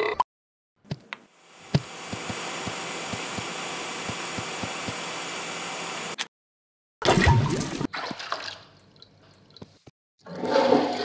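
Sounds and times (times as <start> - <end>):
hair dryer fan rushing: 1.5 - 6.2.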